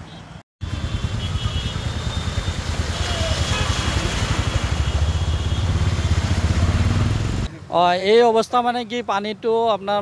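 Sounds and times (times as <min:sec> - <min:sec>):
vehicle engine rumbling: 0:00.6 - 0:07.5
floodwater rushing: 0:00.7 - 0:07.5.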